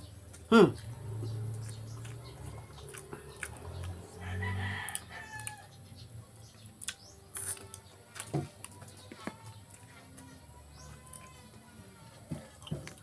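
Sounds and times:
eating with hands clicks and smacks: 0:00.0 - 0:05.8, 0:06.4 - 0:13.0
rooster crowing: 0:04.2 - 0:05.8.

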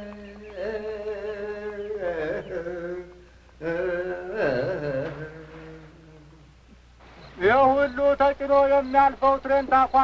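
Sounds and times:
person singing long notes: 0:00.0 - 0:06.5.

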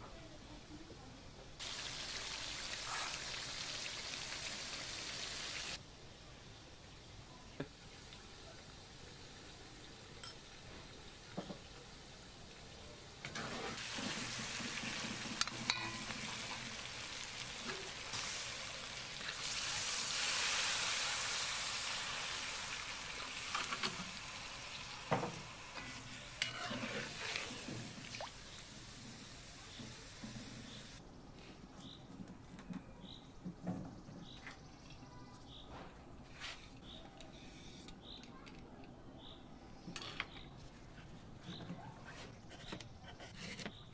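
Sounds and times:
meat and onions sizzling in pot: 0:01.6 - 0:05.8, 0:07.8 - 0:31.0
water hissing in hot pot: 0:01.6 - 0:05.8, 0:13.5 - 0:31.0.

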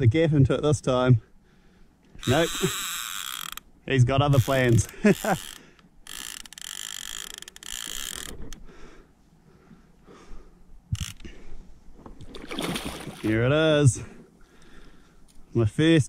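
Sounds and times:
ratchet-like buzz: 0:02.2 - 0:03.6, 0:04.4 - 0:08.4
fishing reel whirring: 0:02.2 - 0:03.7, 0:04.3 - 0:08.6, 0:10.9 - 0:11.3.

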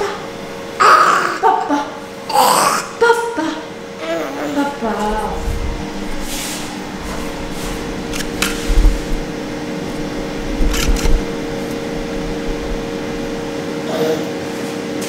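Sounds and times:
machine hum: 0:00.0 - 0:14.4
dull low bumps: 0:04.8 - 0:13.6
sharp clicks: 0:10.5 - 0:11.8.

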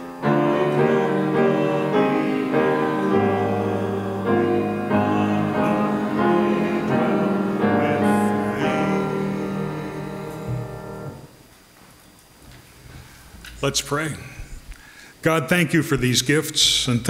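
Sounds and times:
grand piano playing hymn-style chords: 0:00.0 - 0:11.4.

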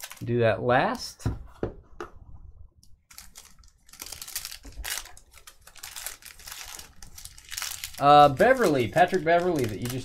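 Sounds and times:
wrapper crinkling: 0:00.0 - 0:00.3, 0:03.0 - 0:10.0.

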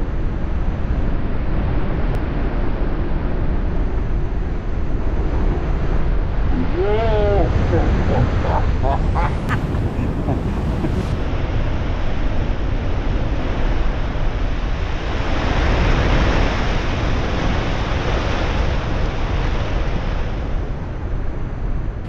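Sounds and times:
wind rumbling on microphone: 0:00.0 - 0:22.0
storm surf breaking: 0:06.4 - 0:11.3.

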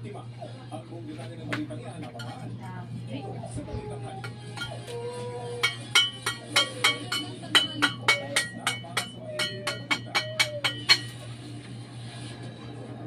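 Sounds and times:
metal tool striking concrete blocks: 0:05.6 - 0:11.2.

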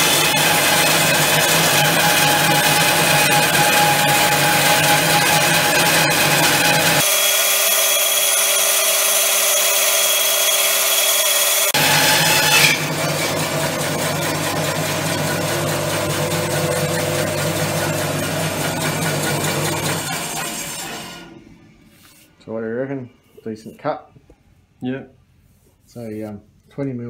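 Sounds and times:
bandsaw cutting wood: 0:00.0 - 0:21.4
shop vacuum running: 0:00.0 - 0:22.4.

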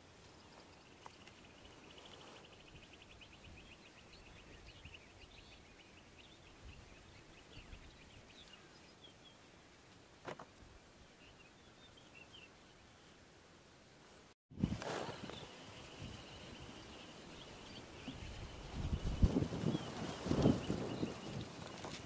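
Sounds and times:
small birds chirping: 0:00.0 - 0:09.6, 0:11.0 - 0:13.2, 0:14.7 - 0:22.0.

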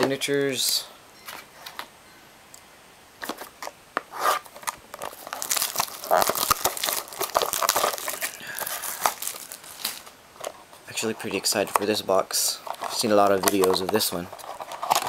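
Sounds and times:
plastic wrapping crinkling: 0:03.2 - 0:15.0.

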